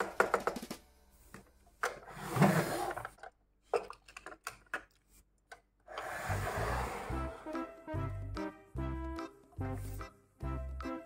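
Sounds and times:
toy car scraping slide: 2.1 - 3.2, 5.9 - 7.4.

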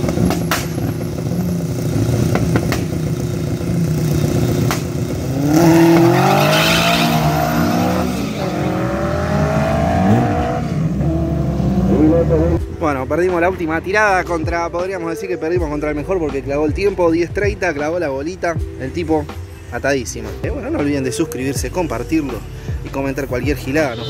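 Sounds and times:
drag racing engines revving: 0.0 - 12.6.

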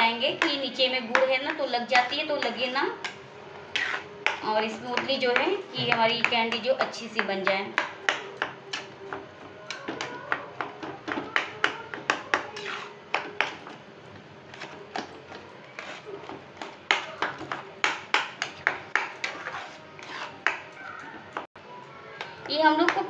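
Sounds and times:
metal spatula scraping a pan: 0.4 - 5.9, 11.9 - 13.8, 14.4 - 20.7.

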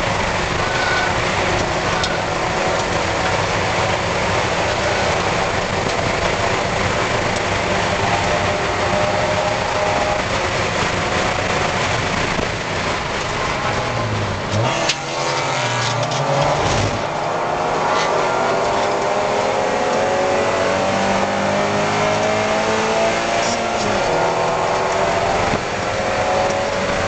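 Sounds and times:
car engine at race pace: 0.0 - 27.0.

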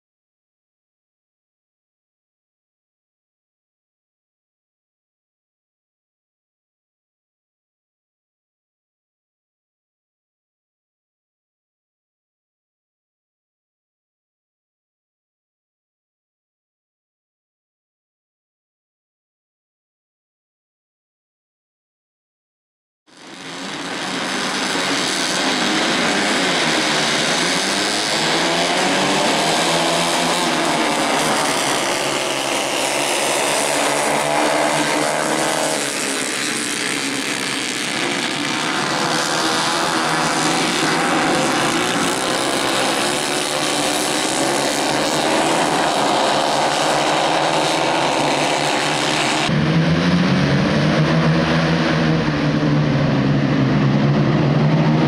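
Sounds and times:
racing kart engines: 23.1 - 55.0.

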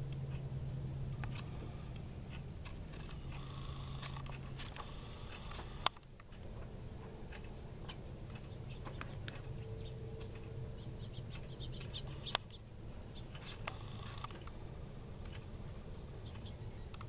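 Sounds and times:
low steady hum: 0.0 - 17.0
birds chirping: 0.1 - 17.0.

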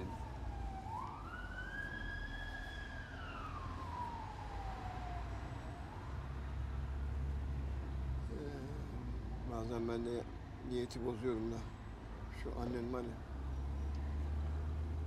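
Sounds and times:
siren wailing: 0.0 - 6.0
engine and road noise rumble: 0.0 - 15.0.

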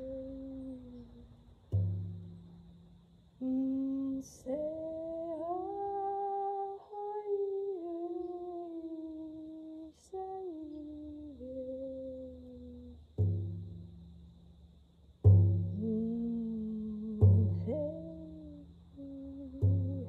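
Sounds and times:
woman's wordless singing: 0.0 - 1.6, 3.4 - 13.1, 15.5 - 20.0.

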